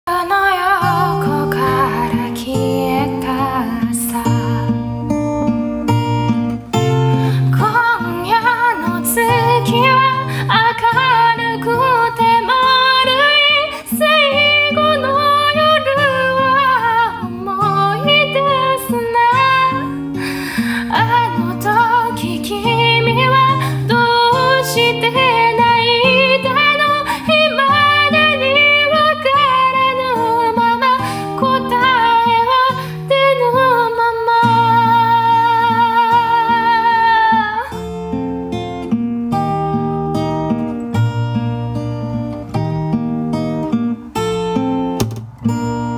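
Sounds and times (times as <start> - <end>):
woman singing ballad: 0.1 - 5.4, 7.0 - 37.9
acoustic guitar chords: 0.1 - 45.9.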